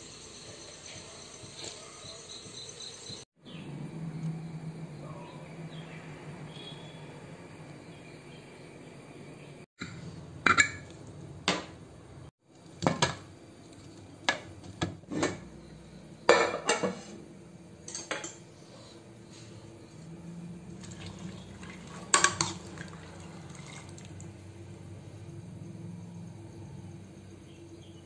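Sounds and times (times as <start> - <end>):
faint chirps: 0.0 - 9.6.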